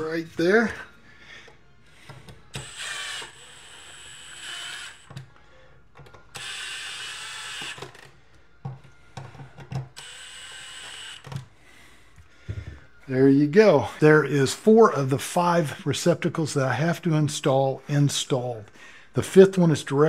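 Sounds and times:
cordless driver whining: 1.4s - 8.2s, 9.1s - 11.5s.

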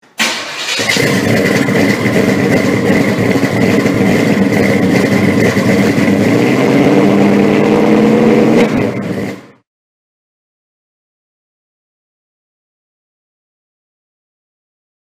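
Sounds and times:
car engine fast idling: 0.2s - 9.6s.

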